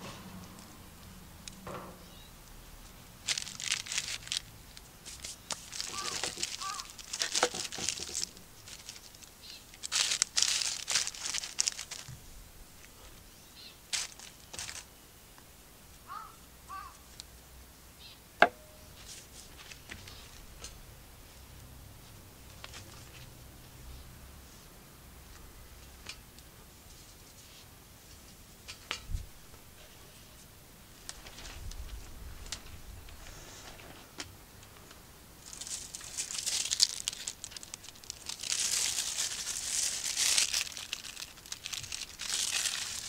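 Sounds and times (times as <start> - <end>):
crusty bread tearing: 3.2 - 12.1, 35.4 - 43.0.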